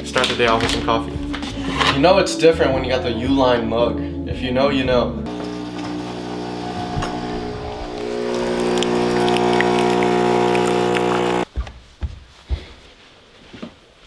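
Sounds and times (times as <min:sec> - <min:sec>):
coffee machine pump humming: 0:05.3 - 0:11.5.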